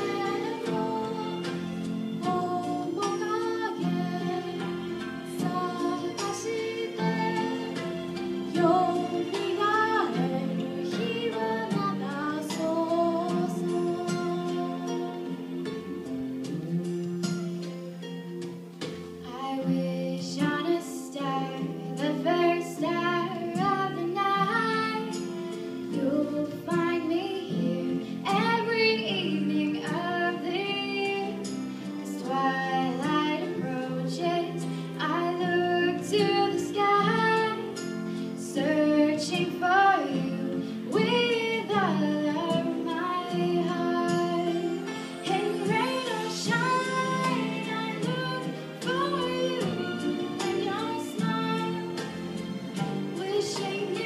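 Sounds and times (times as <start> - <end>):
woman singing into a microphone: 0.0 - 1.6, 2.2 - 17.4, 19.2 - 52.2, 52.8 - 54.0.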